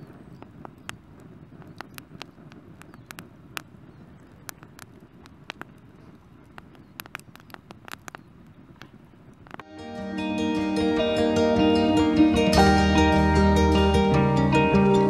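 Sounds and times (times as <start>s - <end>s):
campfire crackling and popping: 0.0s - 9.7s
low steady rumble: 0.0s - 15.0s.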